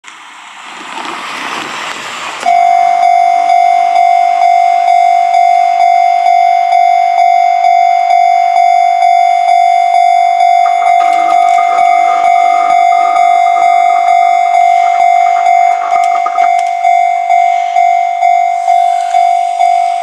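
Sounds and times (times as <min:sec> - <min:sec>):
level crossing warning bell: 0:02.4 - 0:20.0
rush of noise: 0:10.5 - 0:17.2.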